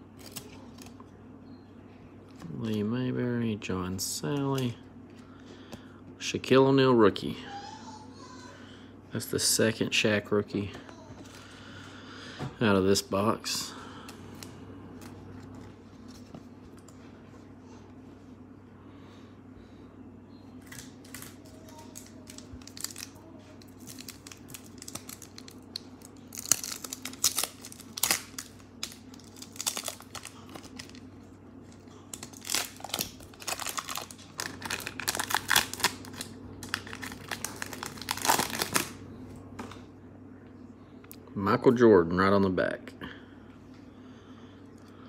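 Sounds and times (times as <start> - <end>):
wrapper tearing and crinkling: 0.2 - 1.0, 20.7 - 31.1, 32.1 - 39.0.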